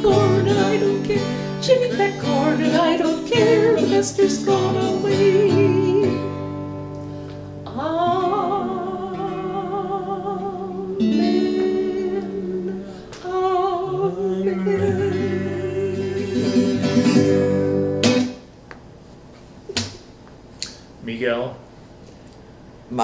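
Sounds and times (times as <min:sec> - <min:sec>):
woman and man singing: 0:00.0 - 0:06.4, 0:07.7 - 0:17.7
strummed acoustic guitar: 0:00.0 - 0:18.5.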